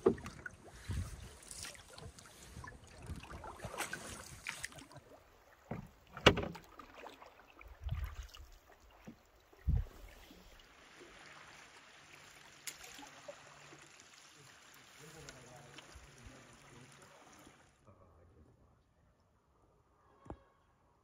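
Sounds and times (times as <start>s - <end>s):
paddle knocking against canoe: 0.0s - 0.5s, 5.6s - 6.6s
wash of moving water: 0.0s - 17.8s.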